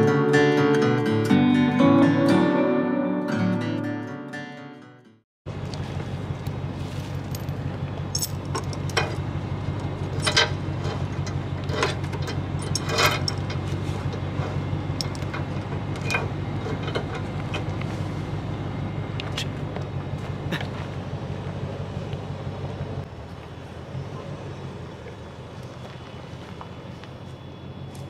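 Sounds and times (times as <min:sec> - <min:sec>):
engine idling: 0:05.5 - 0:28.0
steel chain clinking and rattling: 0:07.1 - 0:09.2, 0:10.0 - 0:17.2.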